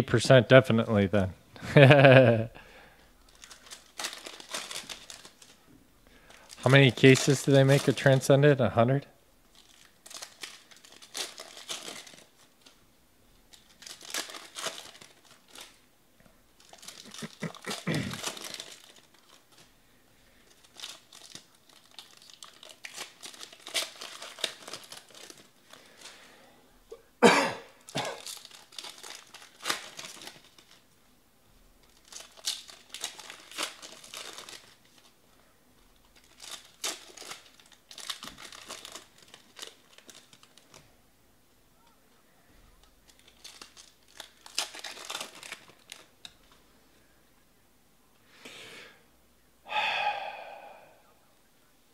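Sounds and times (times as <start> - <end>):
foil wrappers crinkling and tearing: 2.8 - 8.5, 9.4 - 15.9, 16.5 - 26.4, 27.8 - 30.9, 31.8 - 35.2, 35.8 - 41.0, 42.8 - 46.6.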